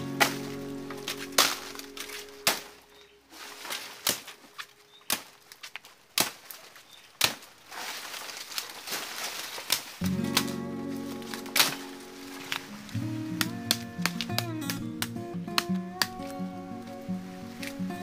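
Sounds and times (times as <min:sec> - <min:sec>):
machete chopping plant stalk: 0:02.4 - 0:02.7, 0:06.2 - 0:06.6, 0:07.2 - 0:07.5.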